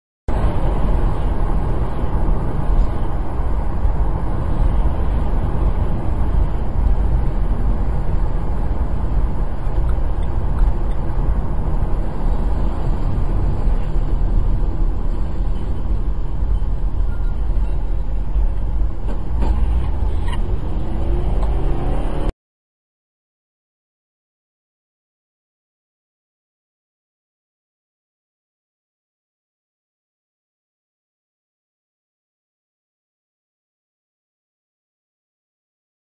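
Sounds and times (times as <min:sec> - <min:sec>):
car road and engine rumble: 0:00.3 - 0:22.3.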